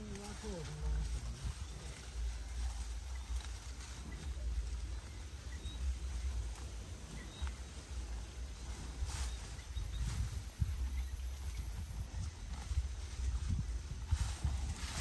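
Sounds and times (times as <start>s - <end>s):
grass rustling: 0.0s - 15.0s
wind rumble on microphone: 0.0s - 15.0s.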